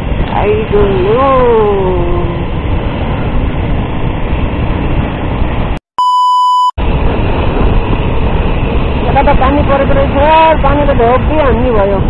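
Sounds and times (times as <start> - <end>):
wind rushing over microphone: 0.0 - 5.8, 6.8 - 12.0
steady beep: 6.0 - 6.8.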